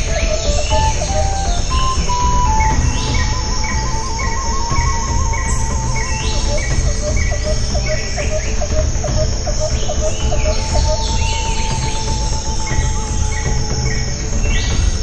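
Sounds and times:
short pulsed notes: 0.0 - 8.2
bird trilling call: 0.0 - 14.8
insects chirping: 0.0 - 15.0
rising whistled calls: 0.0 - 15.0
steady whistled tone: 0.0 - 15.0.

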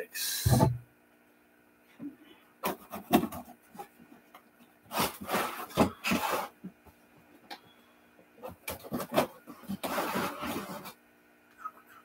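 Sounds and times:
cardboard box scraping on table: 4.9 - 6.6, 8.8 - 11.0.

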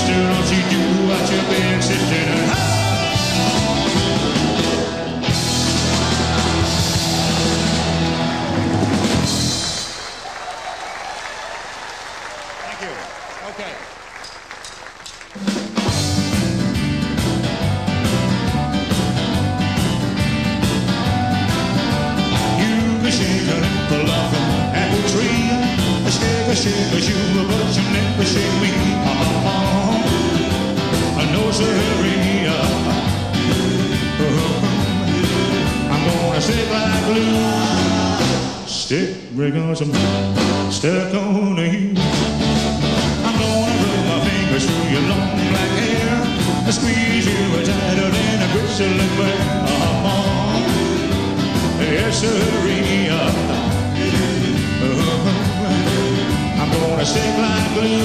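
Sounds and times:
man singing: 0.0 - 4.7, 22.1 - 42.4, 43.1 - 58.0
live rock band playing: 0.0 - 10.4, 14.6 - 38.7, 39.9 - 41.0, 42.0 - 58.0.

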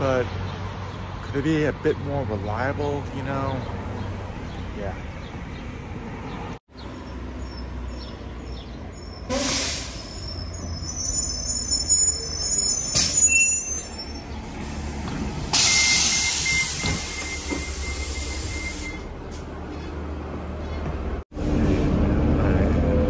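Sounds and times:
bus engine running: 3.4 - 23.0
brake squeal: 8.8 - 20.0
air hissing: 9.3 - 10.3, 14.6 - 19.0
high beeping: 15.6 - 19.1.

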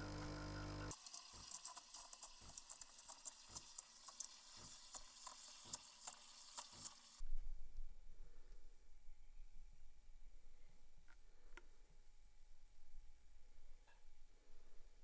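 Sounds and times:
steam wand frothing milk: 0.0 - 7.2.

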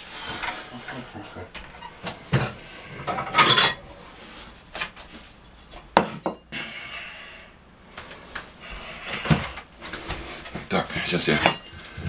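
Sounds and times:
dishes clattering: 0.4 - 3.8, 11.3 - 11.8.

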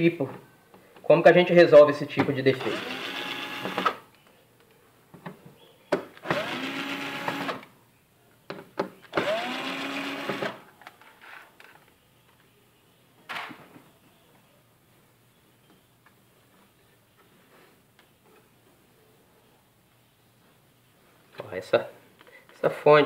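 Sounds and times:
electric screwdriver whirring: 2.6 - 4.0, 6.2 - 7.7, 9.2 - 10.6.

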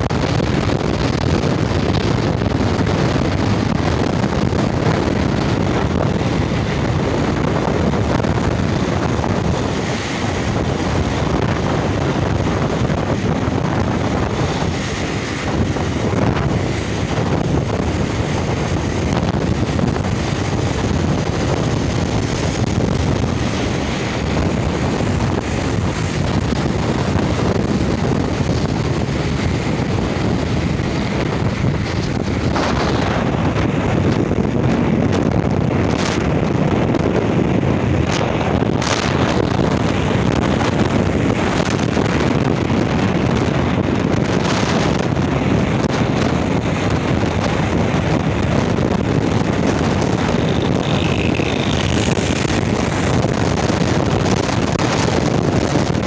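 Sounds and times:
motorcycle engine: 0.0 - 56.0
wind rushing over microphone: 0.0 - 56.0.

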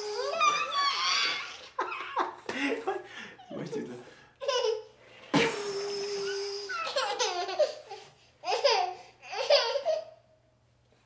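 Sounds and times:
toddler laughing: 4.4 - 5.5, 6.2 - 10.2
high-pitched laughing squeal: 5.4 - 7.8.

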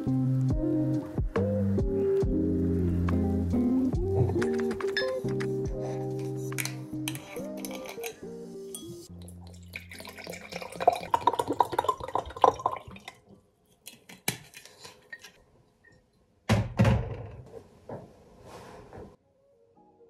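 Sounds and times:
hard objects clinking and tapping: 6.2 - 8.2.

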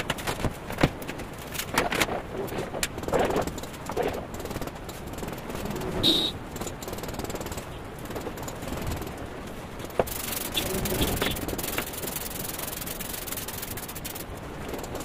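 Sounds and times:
tools scraping wet mortar: 9.9 - 15.0.

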